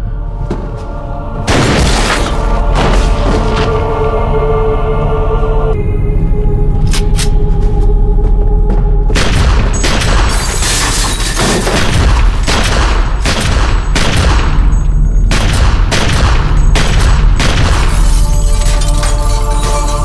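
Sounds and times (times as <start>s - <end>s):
steady low rumble: 0.0s - 10.6s.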